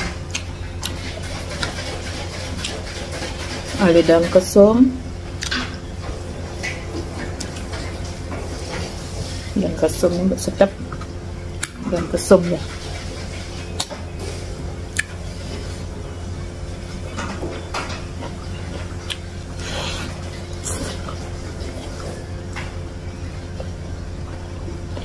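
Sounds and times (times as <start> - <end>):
low steady hum: 0.0 - 25.0
chewing and wet mouth noises: 0.3 - 3.8, 5.4 - 5.8, 10.8 - 14.0, 14.9 - 15.8, 18.2 - 22.7.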